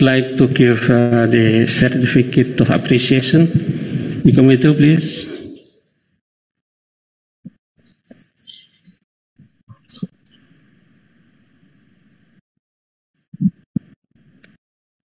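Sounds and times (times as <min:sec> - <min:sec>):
soft microphone clicks: 0:09.7 - 0:10.4.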